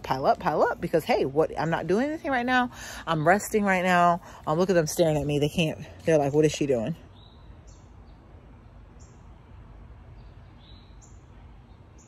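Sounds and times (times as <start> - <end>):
low steady hum: 0.0 - 12.0
bird chirping: 5.9 - 9.5, 10.1 - 12.0.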